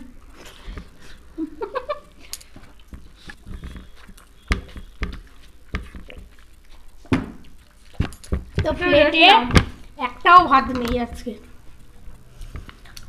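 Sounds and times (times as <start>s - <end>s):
person chewing and swallowing: 2.2s - 8.6s.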